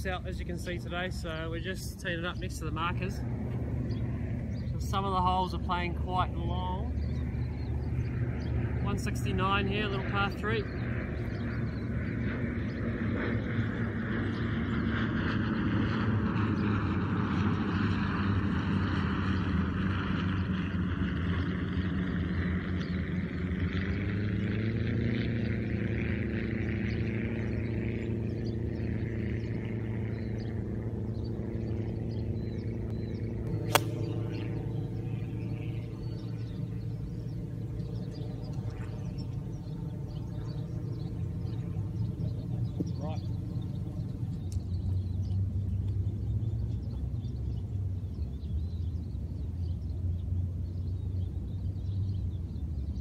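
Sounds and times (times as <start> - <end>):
steady low rumble: 0.0 - 14.6, 29.3 - 46.6
engine humming: 20.4 - 46.6
golf club striking ball: 33.5 - 34.8.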